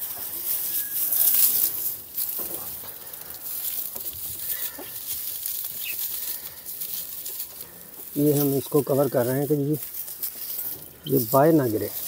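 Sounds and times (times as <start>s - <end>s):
rustling and scraping material: 0.0s - 12.0s.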